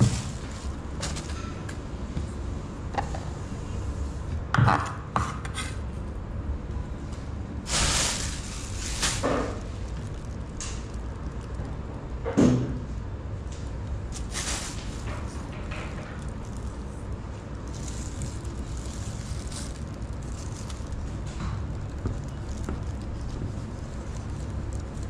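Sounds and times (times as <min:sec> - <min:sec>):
plastic bag rustling: 0:00.0 - 0:01.7, 0:07.6 - 0:11.7, 0:14.0 - 0:25.0
low steady hum: 0:00.0 - 0:25.0.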